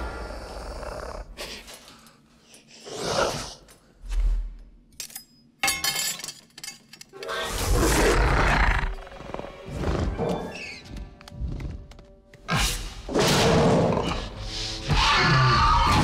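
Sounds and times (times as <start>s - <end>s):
orchestral film music: 7.2s - 16.0s
creature screech: 14.9s - 16.0s.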